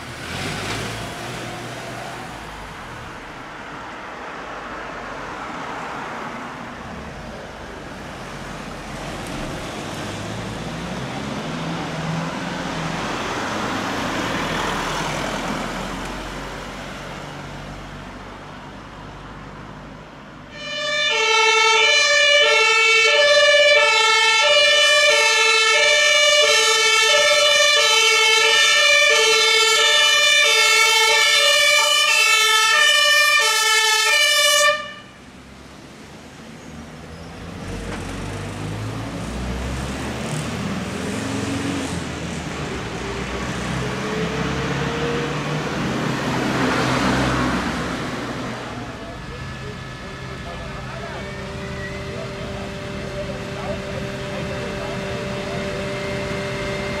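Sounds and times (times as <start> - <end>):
vehicle engine and tyre noise: 0.0 - 57.0
fire engine two-tone siren: 20.5 - 35.3, 42.7 - 57.0.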